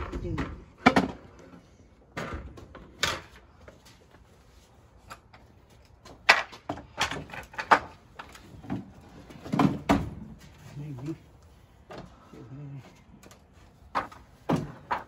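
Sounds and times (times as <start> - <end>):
wooden boards knocking and clattering: 0.0 - 3.6, 6.0 - 10.6, 13.2 - 15.0.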